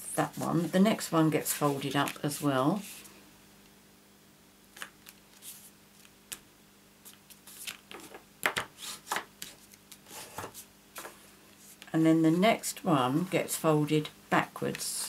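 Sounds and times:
paper rustling and scraping: 7.1 - 8.2, 8.8 - 11.9.

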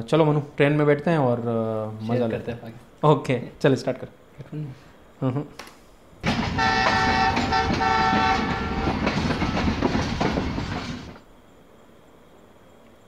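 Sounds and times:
train wheels clattering on rails: 6.2 - 11.3
train horn blowing: 6.4 - 9.5.

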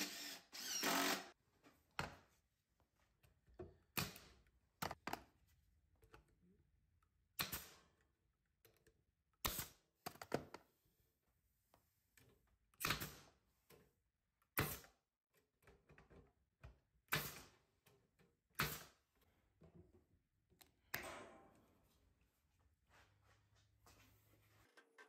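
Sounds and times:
pneumatic stapler shots: 12.8 - 13.3, 17.1 - 17.5, 18.6 - 19.0.

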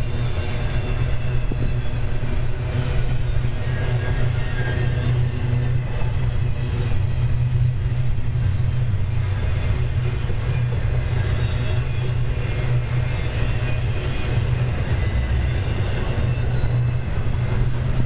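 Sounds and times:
steel train wheels rumbling on rail: 0.0 - 18.0.

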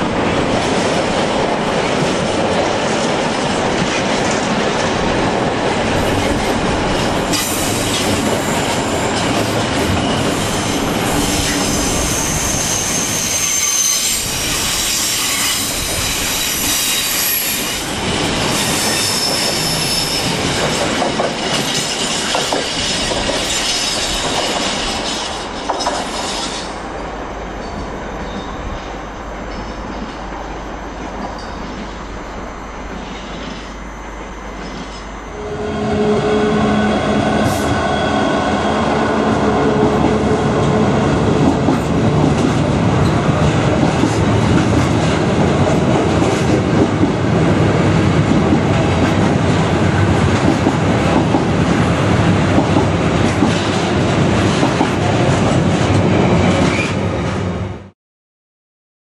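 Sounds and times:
diesel locomotive engine: 0.0 - 57.9
train wheels clattering over rail joints: 14.2 - 26.8, 48.1 - 57.0.

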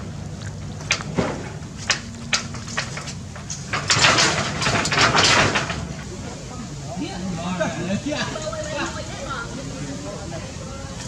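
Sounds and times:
monkeys rattling across metal roof: 0.8 - 6.0
knocks on metal roof: 3.7 - 5.8.

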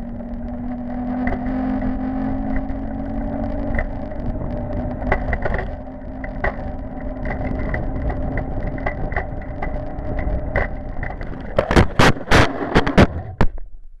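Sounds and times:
scooter rolling over pavement: 0.0 - 13.6
low steady hum: 0.0 - 14.0
scooter crashing on road: 6.4 - 13.6.

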